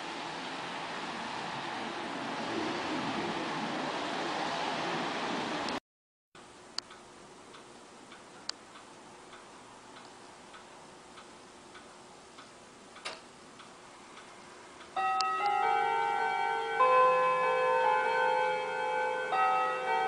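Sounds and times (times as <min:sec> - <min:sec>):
wall clock ticking: 0:06.4 - 0:16.0
clock chime ringing: 0:15.0 - 0:20.0.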